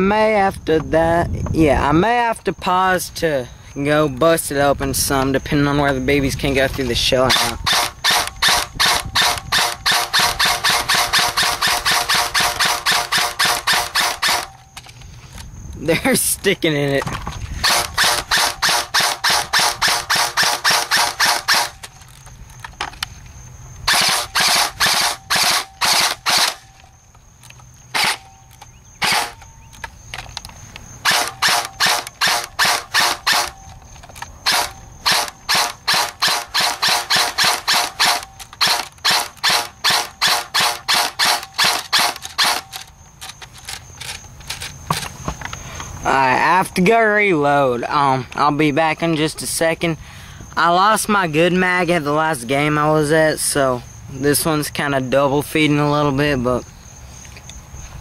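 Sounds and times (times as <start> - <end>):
airsoft rifle rapid firing: 7.3 - 14.6, 17.6 - 21.8, 23.9 - 26.7, 27.9 - 28.2, 29.0 - 29.4, 31.0 - 33.6, 34.4 - 42.8.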